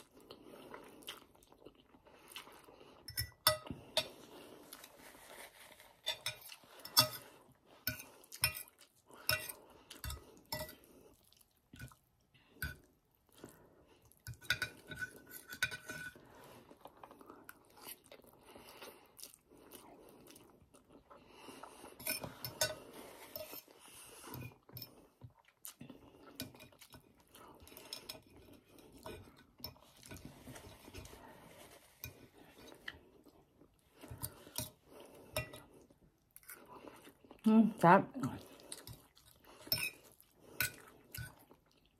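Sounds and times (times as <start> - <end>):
chewing: 0.0 - 15.5, 16.1 - 37.5, 38.3 - 41.9.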